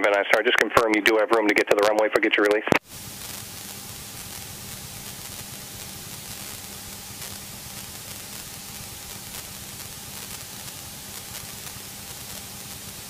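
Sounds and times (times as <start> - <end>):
faint steady hum: 0.0 - 13.0
radio static hiss: 0.0 - 13.0.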